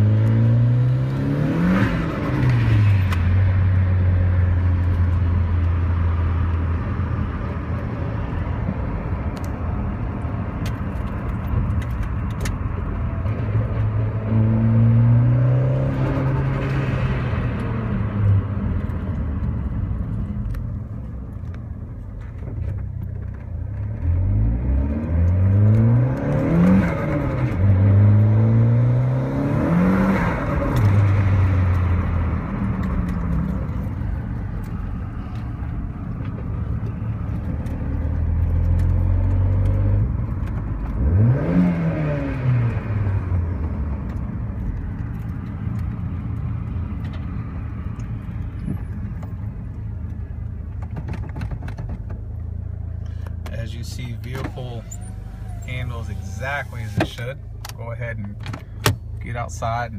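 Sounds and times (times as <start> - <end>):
car engine revving from inside cabin: 14.1 - 16.8, 24.0 - 32.3, 41.0 - 43.4.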